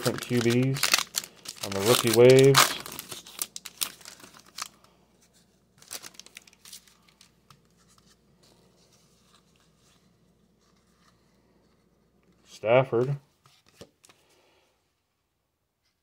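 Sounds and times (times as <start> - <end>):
foil wrapper crinkling: 0.0 - 5.0, 5.8 - 7.4
cards rustling: 0.0 - 14.3.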